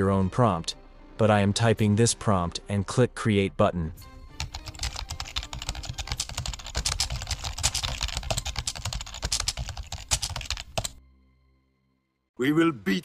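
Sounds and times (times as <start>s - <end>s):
fast typing on keyboard: 4.4s - 11.0s.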